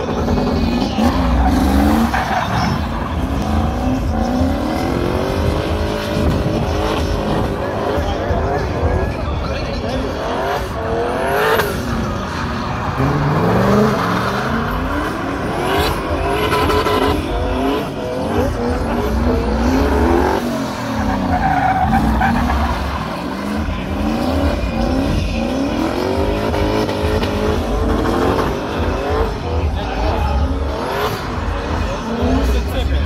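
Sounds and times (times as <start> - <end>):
car engines revving: 0.0 - 33.0
tyres skidding on asphalt: 0.0 - 33.0.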